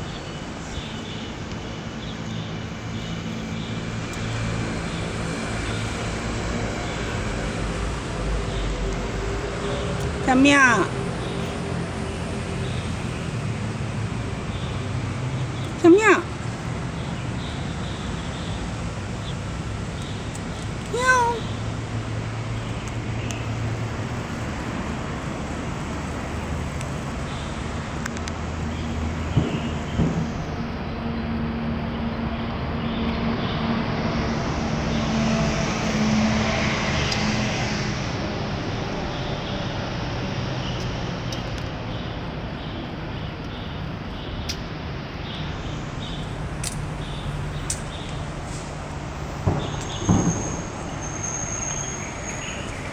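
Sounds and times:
distant road traffic rumble: 0.0 - 52.9.

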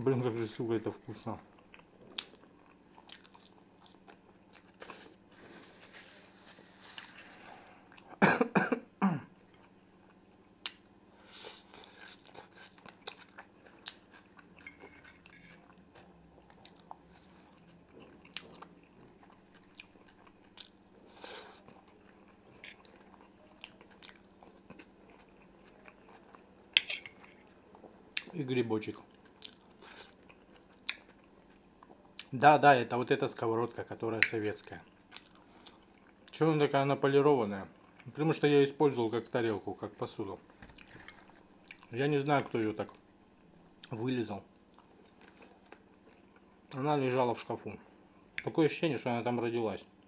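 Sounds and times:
chewing and biting food: 11.7 - 14.9, 15.6 - 28.3, 29.0 - 32.3.

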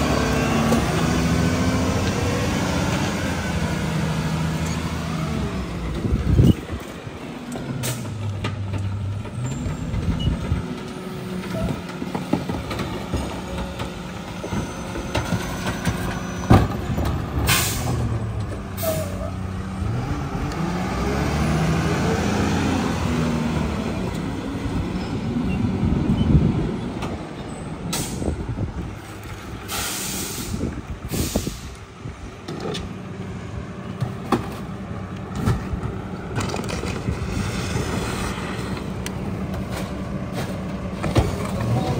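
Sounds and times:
garbage truck diesel engine: 0.0 - 41.9
air brake hisses: 17.5 - 18.0, 29.7 - 31.8.

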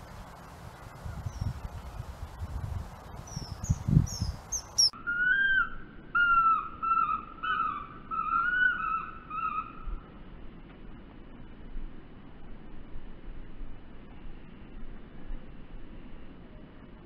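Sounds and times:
kingfisher calling: 3.3 - 9.8.

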